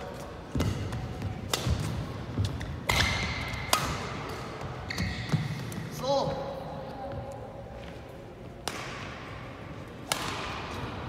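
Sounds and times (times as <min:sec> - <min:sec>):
racket striking shuttlecock: 0:00.6 - 0:05.6, 0:08.6 - 0:09.3, 0:10.0 - 0:10.9
shoes squeaking on court: 0:04.3 - 0:05.9.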